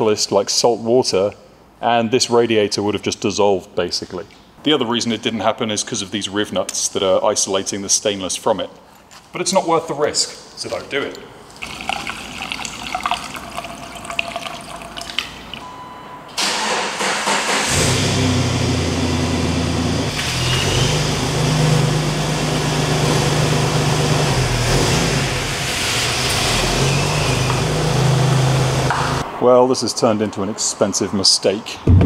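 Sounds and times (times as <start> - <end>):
coolant trickling: 10.6 - 15.6
car engine droning: 16.4 - 29.3.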